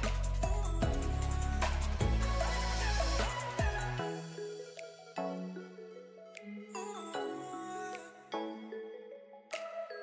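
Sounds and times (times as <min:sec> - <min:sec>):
music with deep bass and beat: 0:00.0 - 0:05.6.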